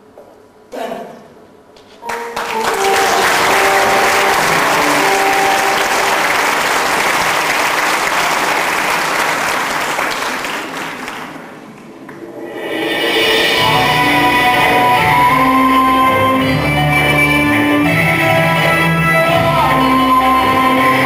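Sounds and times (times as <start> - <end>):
audience applauding: 2.0 - 12.2.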